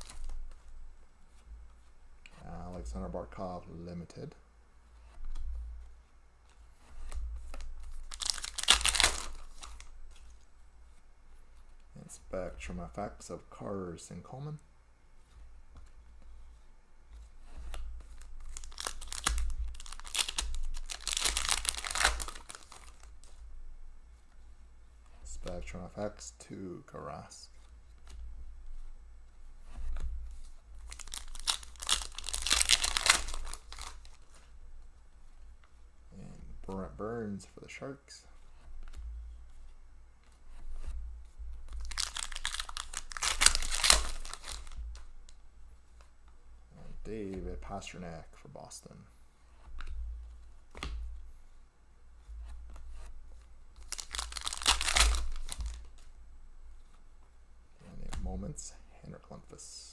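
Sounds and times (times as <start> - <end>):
foil wrapper crinkling: 7.9 - 9.9, 18.2 - 23.2, 30.8 - 34.3, 41.7 - 44.9, 53.8 - 56.0.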